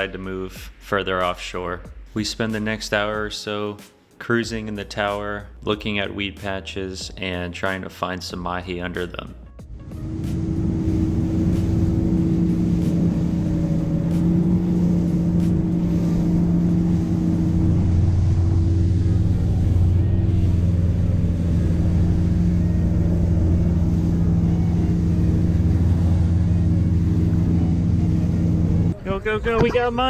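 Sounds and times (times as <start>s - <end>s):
motorboat engine humming: 9.6s - 30.0s.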